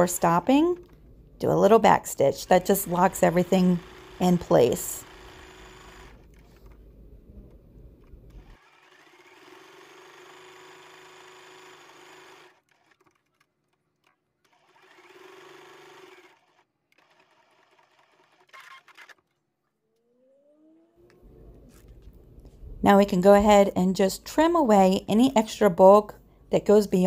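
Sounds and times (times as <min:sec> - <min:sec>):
sewing machine stitching: 0:02.4 - 0:06.8, 0:08.0 - 0:19.3.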